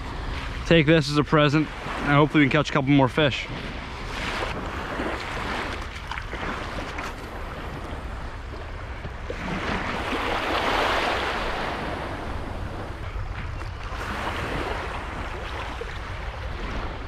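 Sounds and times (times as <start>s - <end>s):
small waves washing on sand: 0.0s - 8.6s, 9.3s - 17.0s
wind on microphone: 3.4s - 17.0s.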